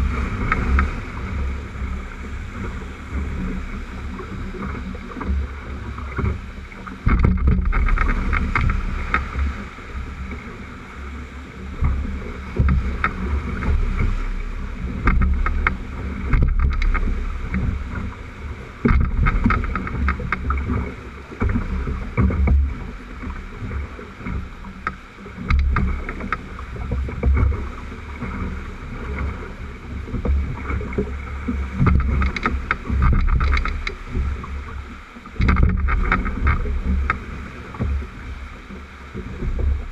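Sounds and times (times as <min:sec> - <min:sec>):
whitewater rapids rushing: 0:00.0 - 0:30.0
waves splashing against hull: 0:00.0 - 0:39.9
wind buffeting microphone: 0:00.0 - 0:39.9.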